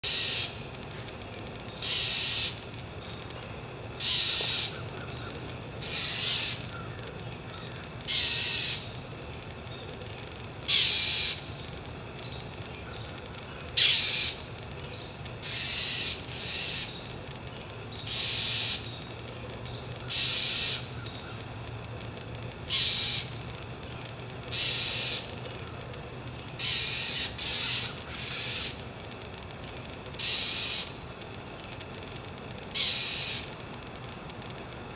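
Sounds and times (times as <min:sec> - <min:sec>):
bird harsh scolding calls: 0:05.8 - 0:06.6.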